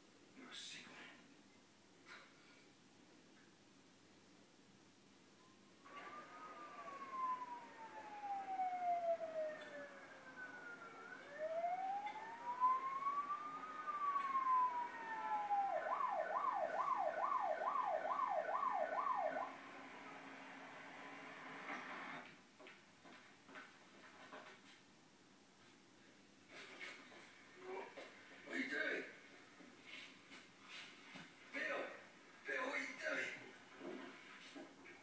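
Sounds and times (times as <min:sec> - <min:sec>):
electronic siren wail and yelp: 0:05.8 - 0:20.6.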